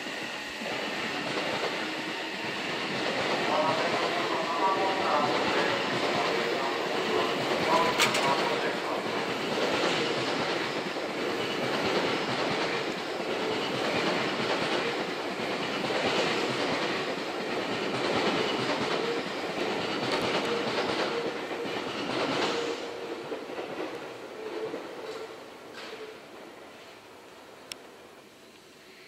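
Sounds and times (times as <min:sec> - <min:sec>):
train wheels rumbling on rails: 0:00.0 - 0:28.3
clacking over rail joints: 0:07.1 - 0:10.8.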